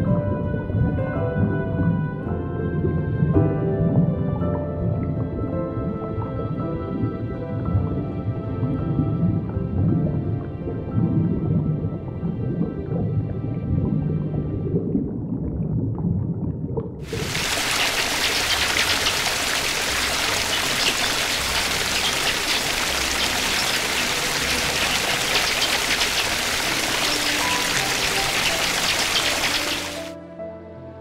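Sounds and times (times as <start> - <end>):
low-pitched sound: 0.0 - 17.4
rush of water: 17.0 - 30.2.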